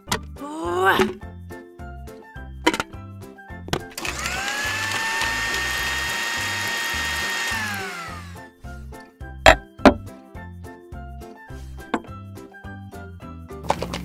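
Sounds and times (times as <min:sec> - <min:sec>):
background music with steady beat: 0:00.0 - 0:05.5, 0:07.4 - 0:14.0
electric blender motor whining: 0:04.0 - 0:08.4.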